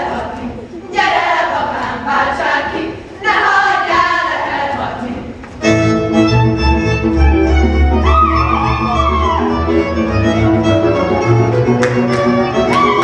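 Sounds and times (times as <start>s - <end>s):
women singing folk song: 0.0s - 5.6s
folk string band playing: 5.6s - 13.0s.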